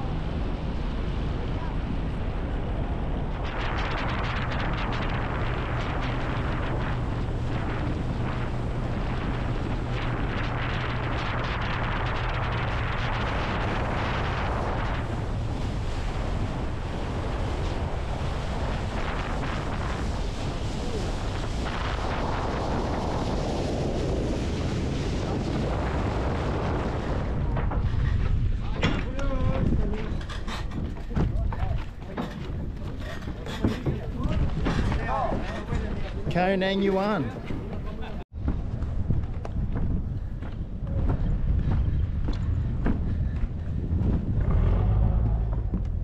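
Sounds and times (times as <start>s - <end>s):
speedboat engine and water rush: 0.0s - 36.2s
wind buffeting microphone: 0.0s - 46.0s.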